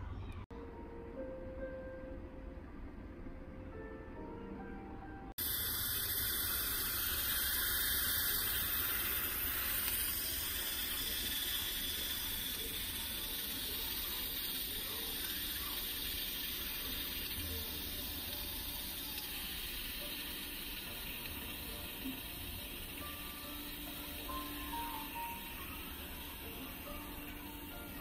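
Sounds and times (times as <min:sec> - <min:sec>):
pressure cooker venting steam: 0:05.4 - 0:28.0.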